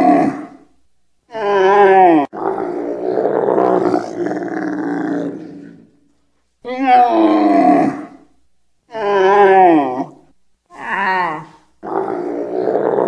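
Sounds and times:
camel moaning call: 0:00.0 - 0:00.5, 0:01.3 - 0:05.9, 0:06.8 - 0:08.2, 0:08.9 - 0:13.0
camel throaty grumble: 0:02.3 - 0:05.9, 0:11.4 - 0:13.0.

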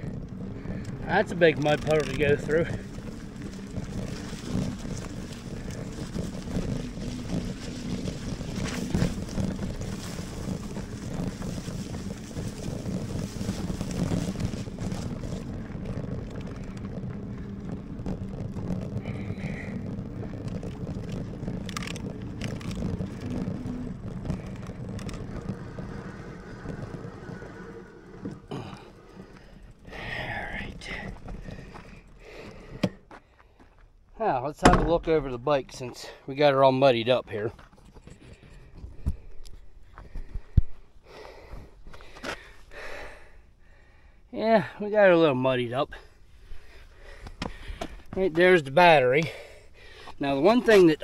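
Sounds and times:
wind on microphone: 0:00.0 - 0:32.8
bike tyre and drivetrain rumble: 0:00.0 - 0:51.0.

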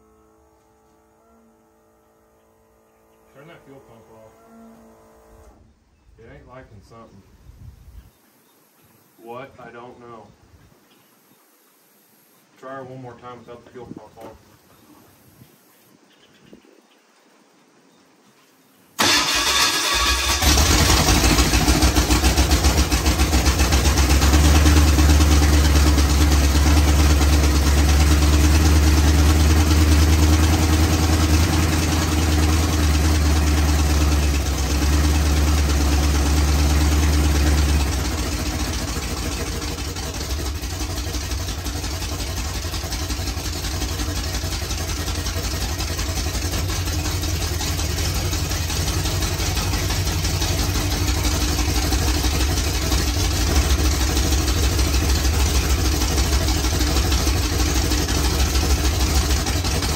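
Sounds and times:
engine cranking and running: 0:19.0 - 0:59.9.

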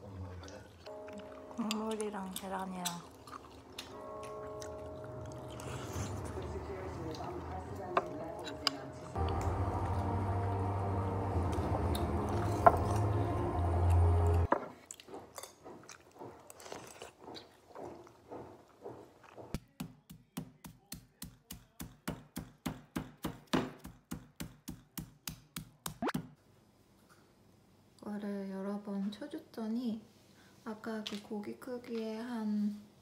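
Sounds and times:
soft eating sounds: 0:00.0 - 0:19.8
steady hum: 0:06.0 - 0:14.5.

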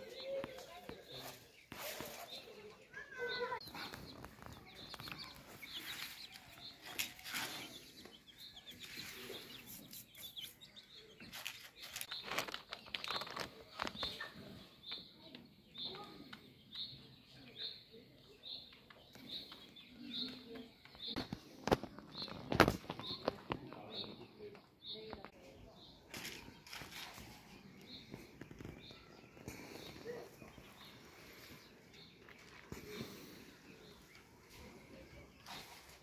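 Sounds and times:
clicks and rustling: 0:11.2 - 0:14.5.

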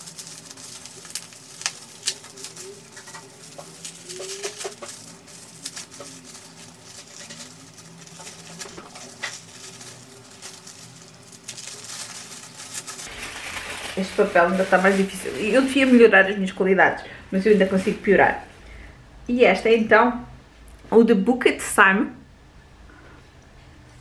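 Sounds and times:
wrapping paper crinkling: 0:00.0 - 0:16.6, 0:17.3 - 0:18.4.

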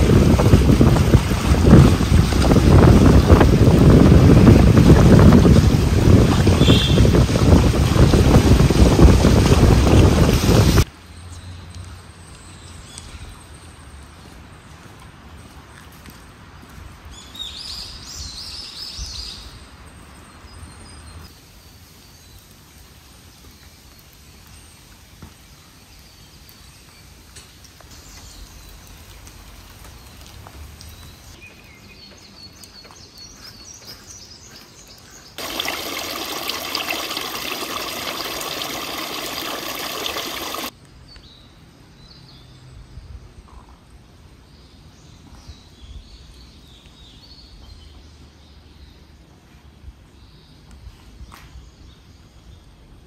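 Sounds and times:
birds chirping: 0:30.8 - 0:40.7.

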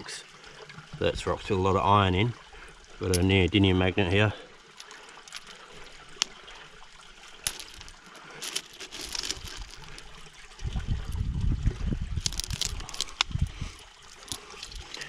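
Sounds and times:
trickle of water: 0:00.0 - 0:15.0
pebbles clicking: 0:04.7 - 0:10.4, 0:12.2 - 0:15.0
low rumble on microphone: 0:10.4 - 0:13.9.

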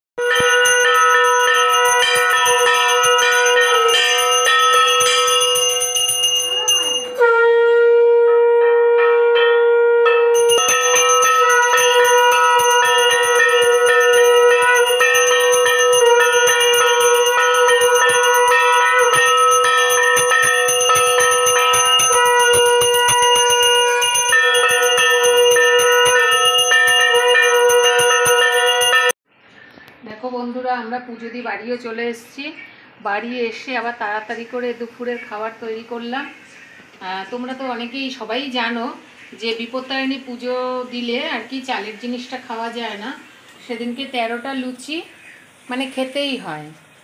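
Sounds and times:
hand bell ringing rapidly: 0:00.2 - 0:07.2, 0:10.4 - 0:29.2
conch shell held note: 0:00.2 - 0:29.1.

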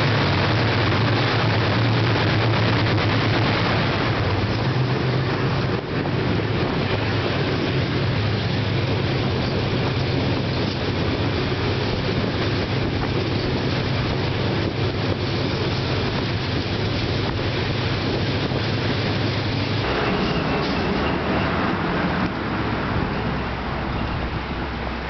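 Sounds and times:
diesel locomotive engine drone: 0:00.0 - 0:25.0
wheels on rails: 0:00.0 - 0:25.0
wind on the microphone: 0:00.0 - 0:25.0.

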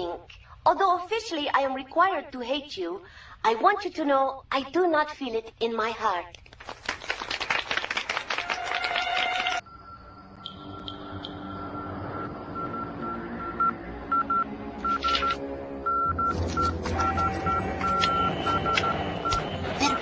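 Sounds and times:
morse code beeps: 0:09.6 - 0:20.0.

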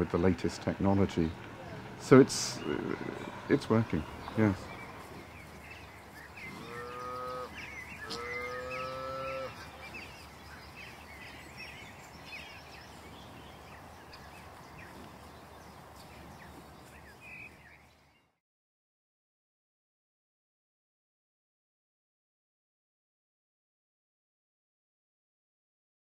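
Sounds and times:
cow mooing: 0:06.4 - 0:09.7.

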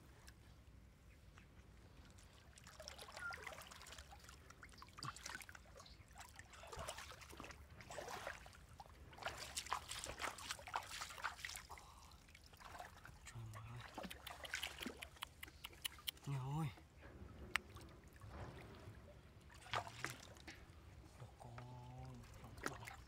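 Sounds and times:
water trickling and sloshing: 0:00.0 - 0:23.0.

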